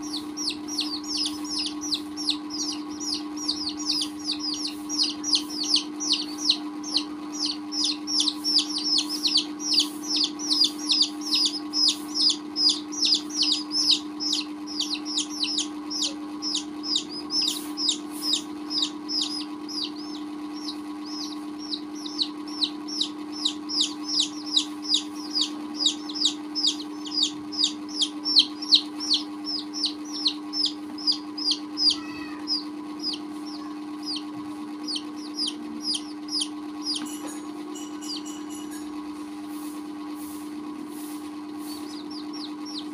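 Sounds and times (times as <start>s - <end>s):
baby chicks peeping: 0.0s - 39.0s, 39.6s - 42.9s
steady low hum: 0.0s - 42.9s.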